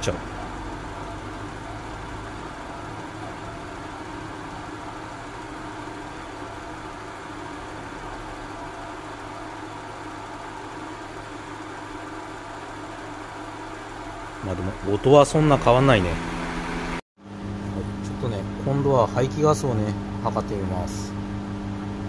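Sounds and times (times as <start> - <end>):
car engine idling: 0.0 - 17.0
noisy water pump: 0.0 - 17.0.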